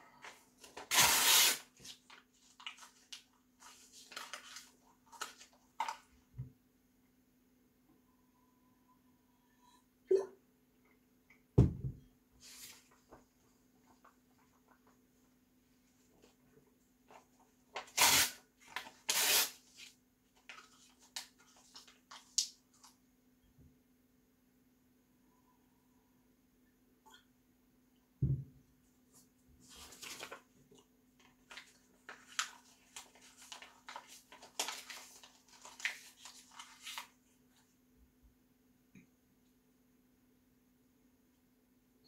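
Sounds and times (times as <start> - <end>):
paper ripping: 0.8 - 2.9, 17.8 - 19.9, 29.7 - 30.4
low thump: 11.6 - 12.0.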